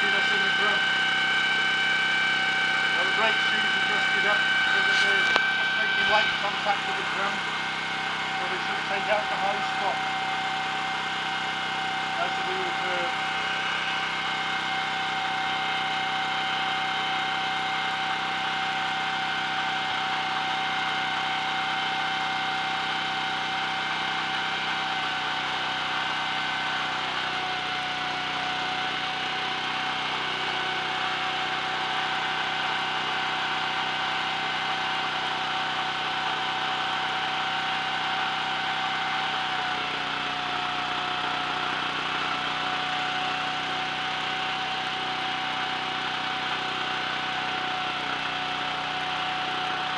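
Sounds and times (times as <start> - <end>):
high whine: 0.0 - 45.7
small petrol engine running: 0.0 - 49.9.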